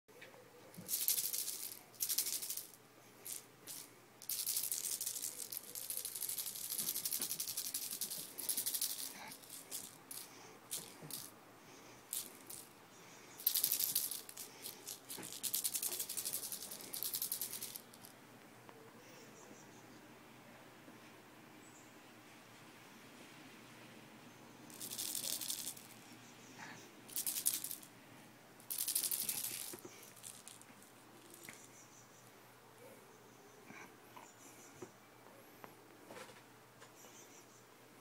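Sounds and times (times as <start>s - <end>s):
high-pitched rattle shaken: 0.7s - 18.1s, 24.7s - 26.0s, 27.1s - 27.9s, 28.6s - 31.8s.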